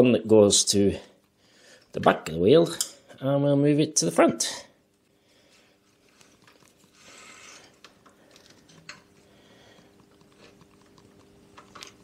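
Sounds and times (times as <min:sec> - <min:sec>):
faint steady hum: 0:00.0 - 0:12.0
cable scraping: 0:06.4 - 0:07.8.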